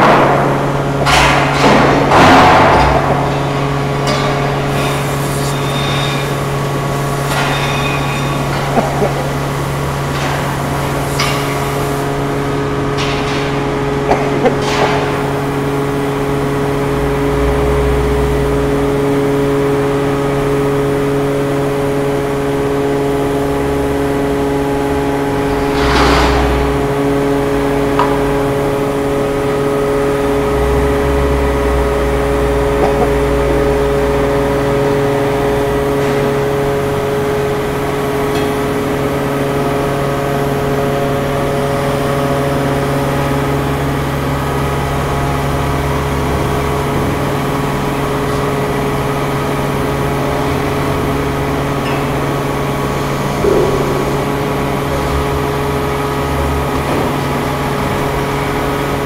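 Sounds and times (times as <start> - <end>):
sharp knocks: 0.0 - 4.5, 53.4 - 55.4
forklift engine under load: 0.0 - 59.0
machine drone: 0.0 - 59.0.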